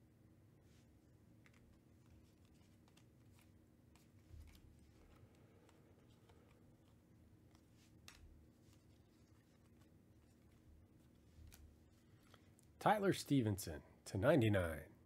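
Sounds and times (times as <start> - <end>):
faint steady hum: 0.0 - 15.0
trading cards sliding: 1.4 - 12.5.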